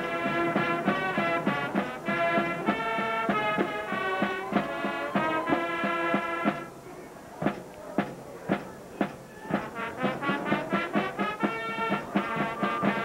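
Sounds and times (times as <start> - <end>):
brass horns holding notes: 0.0 - 6.7, 9.0 - 13.0
steady drum beat: 0.0 - 6.8, 7.4 - 13.0.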